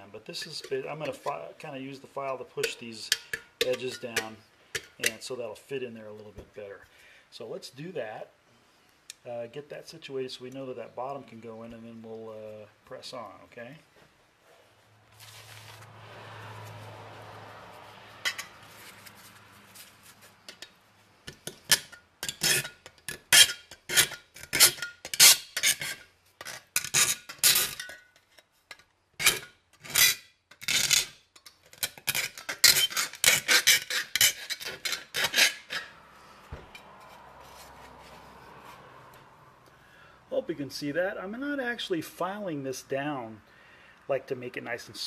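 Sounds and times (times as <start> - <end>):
metal file scraping tin edge: 2.6 - 5.2, 21.3 - 28.0, 29.2 - 36.0.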